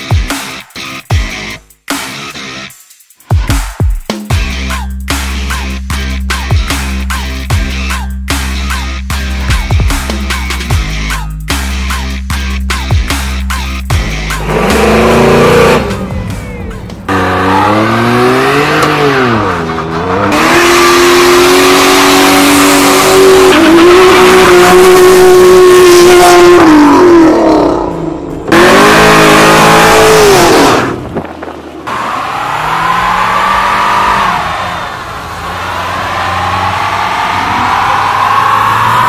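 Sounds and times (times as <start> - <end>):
car engines revving: 13.2 - 39.0
tyres squealing on pavement: 30.8 - 39.0.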